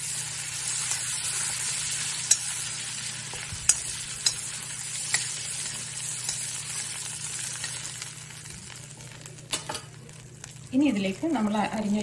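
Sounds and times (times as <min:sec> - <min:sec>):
butter sizzling in a pan: 0:00.0 - 0:12.0
metal spoon clicking against pan: 0:02.2 - 0:02.5, 0:03.7 - 0:04.5, 0:05.1 - 0:05.3, 0:06.2 - 0:06.5.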